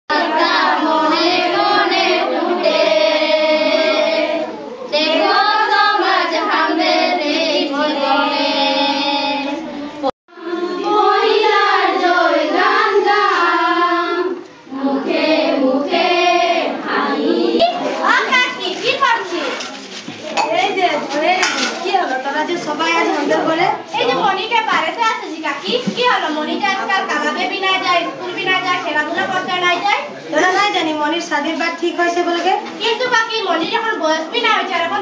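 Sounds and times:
girls singing in unison: 0.1 - 17.8.

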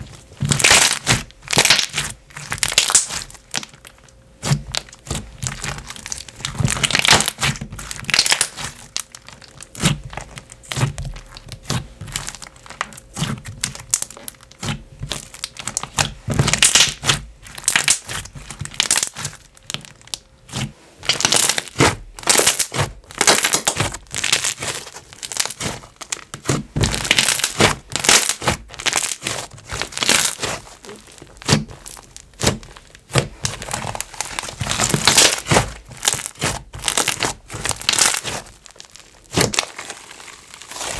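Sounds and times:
slime squished with bubble pops: 0.0 - 40.9.

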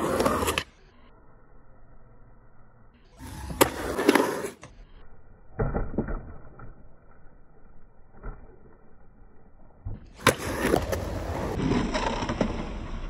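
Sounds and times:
skateboard wheels rumbling on concrete: 0.0 - 0.7, 3.2 - 4.7, 9.8 - 13.0.

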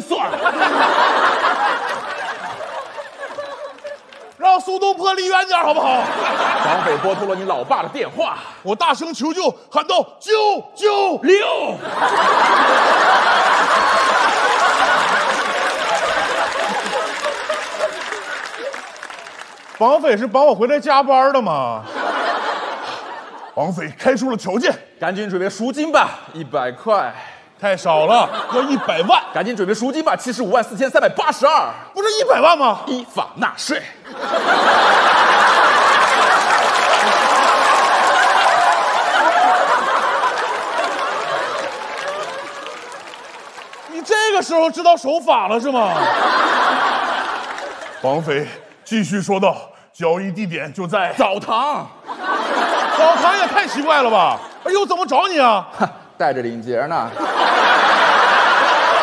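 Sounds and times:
studio audience laughing: 0.0 - 8.6, 11.7 - 19.8, 21.7 - 24.3, 27.9 - 31.8, 33.8 - 44.8, 45.4 - 48.8, 51.0 - 56.2, 57.0 - 59.0.

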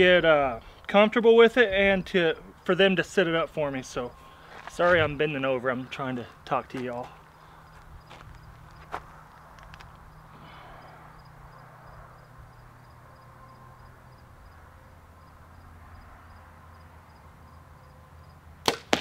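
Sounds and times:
insect chirping: 7.2 - 18.4.

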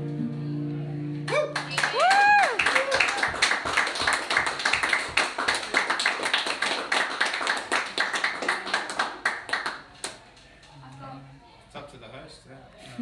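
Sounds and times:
audience applauding: 1.3 - 10.2.

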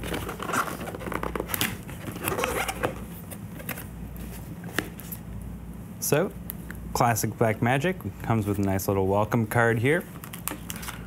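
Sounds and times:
cardboard scraping and rustling: 0.0 - 5.2.

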